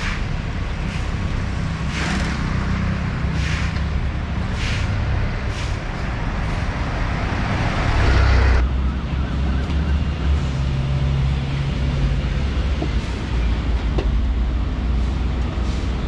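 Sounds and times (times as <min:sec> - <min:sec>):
loud rushing noise: 0:00.0 - 0:08.8
vehicle engines rumbling: 0:00.0 - 0:16.0.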